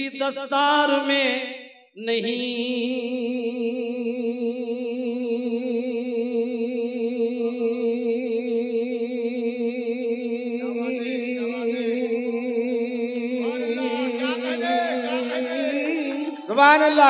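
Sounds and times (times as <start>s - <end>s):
man singing long note: 13.3s - 17.0s.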